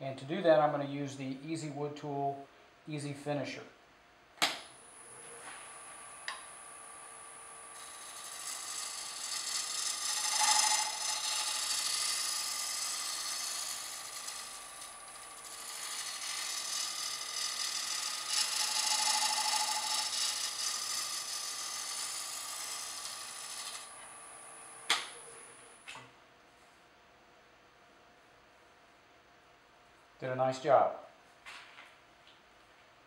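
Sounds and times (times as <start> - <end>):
lathe humming: 4.9 - 25.8.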